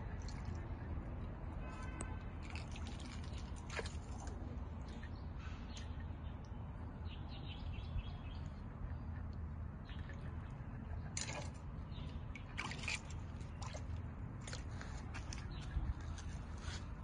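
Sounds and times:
short water splashes: 0.0 - 0.8, 1.6 - 5.9, 9.8 - 17.0
water sloshing: 0.0 - 6.1, 9.8 - 17.0.

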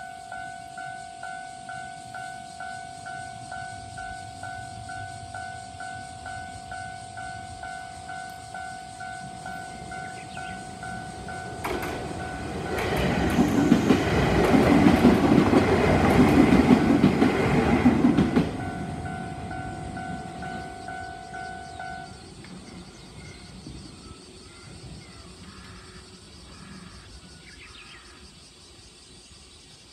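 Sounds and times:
level crossing warning bells: 0.0 - 25.0
electric train passing: 0.0 - 28.4.

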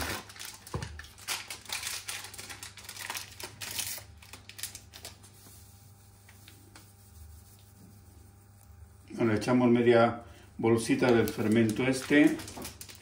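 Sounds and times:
sachet crinkling and tearing: 0.0 - 5.5, 10.9 - 13.0.

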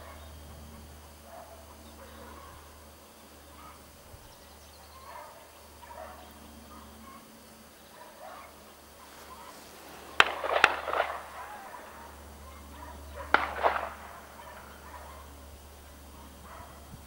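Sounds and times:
animal calling sharp notes: 8.0 - 15.3.

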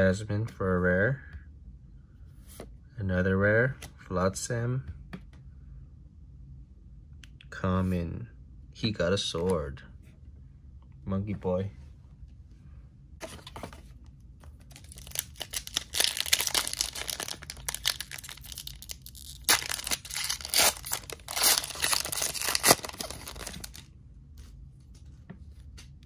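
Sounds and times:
foil wrapper crinkling: 14.7 - 23.8.

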